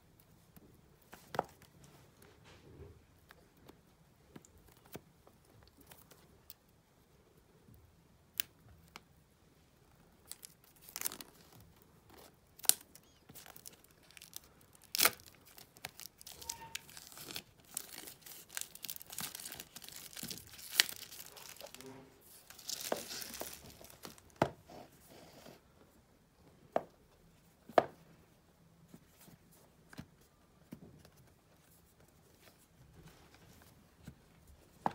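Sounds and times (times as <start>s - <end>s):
plastic wrap tearing and crinkling: 10.2s - 24.4s.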